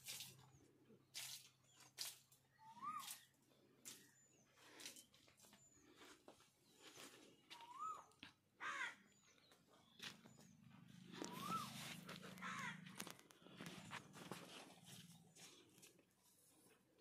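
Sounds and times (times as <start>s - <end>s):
high bird chirps: 2.5s - 3.3s, 7.5s - 8.2s, 11.1s - 12.8s
harsh bird calls: 2.5s - 4.9s, 5.7s - 14.1s
bird whistles: 2.6s - 3.3s, 7.6s - 8.1s, 11.3s - 11.8s.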